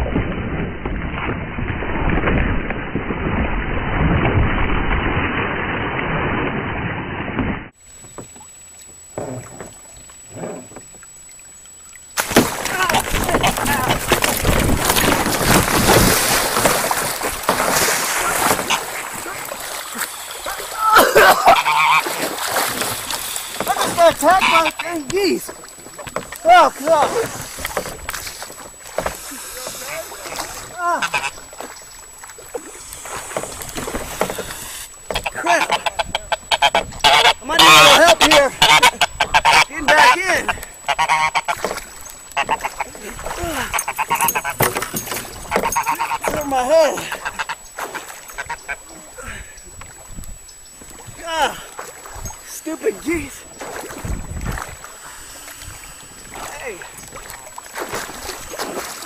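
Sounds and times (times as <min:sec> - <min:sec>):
water splashing: 0:00.0 - 0:59.0
kayak paddle strokes: 0:06.8 - 0:59.0
goose honking: 0:12.9 - 0:14.1, 0:18.2 - 0:19.0, 0:21.3 - 0:22.3, 0:22.9 - 0:25.0, 0:31.0 - 0:31.4, 0:34.4 - 0:41.7, 0:42.4 - 0:43.0, 0:43.7 - 0:44.7, 0:45.4 - 0:46.4, 0:47.2 - 0:47.6, 0:48.4 - 0:48.8.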